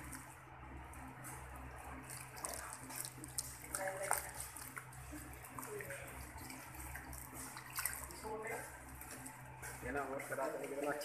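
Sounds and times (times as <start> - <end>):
water splashing into basin: 1.8 - 9.4.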